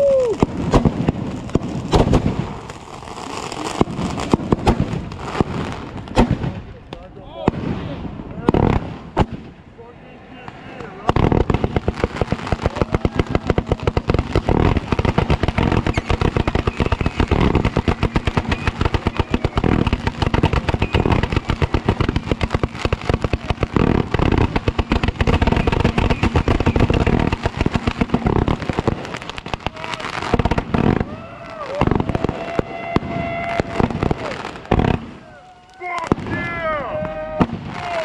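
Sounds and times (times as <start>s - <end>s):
firework tubes firing bangs: 0.0s - 9.6s, 10.5s - 38.0s.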